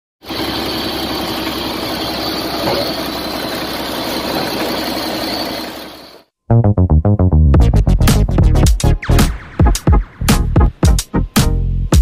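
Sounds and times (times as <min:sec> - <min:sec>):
truck diesel engine idling: 0:00.2 - 0:06.2.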